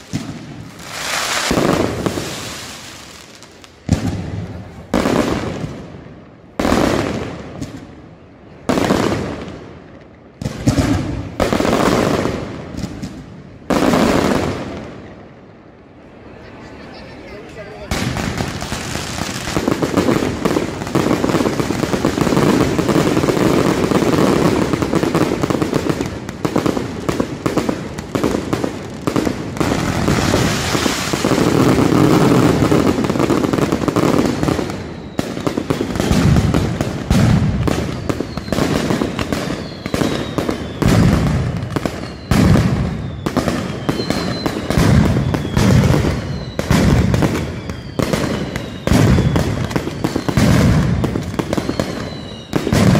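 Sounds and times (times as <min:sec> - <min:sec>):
heavy firework booms: 0:00.0 - 0:03.0, 0:03.8 - 0:15.2, 0:17.9 - 0:52.9
firecrackers crackling: 0:00.0 - 0:52.9
faint falling whistles: 0:39.6 - 0:40.8, 0:43.0 - 0:45.6, 0:46.2 - 0:46.7, 0:47.6 - 0:50.3, 0:51.5 - 0:52.6.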